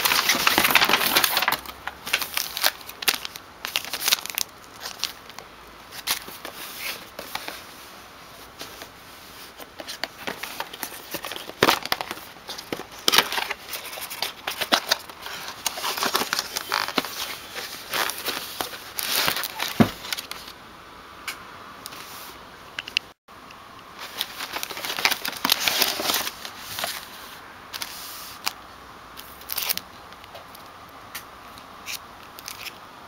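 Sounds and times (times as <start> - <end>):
cardboard and plastic rustling: 0.0 - 20.6, 24.0 - 28.6.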